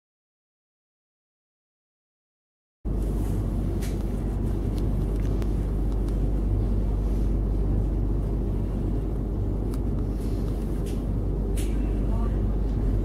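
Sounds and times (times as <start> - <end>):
tram interior low rumble: 2.9 - 13.0.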